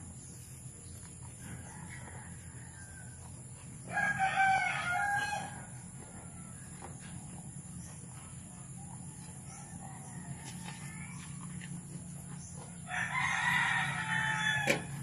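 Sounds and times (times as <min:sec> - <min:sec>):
rooster crowing: 0:01.4 - 0:06.7, 0:12.8 - 0:15.0.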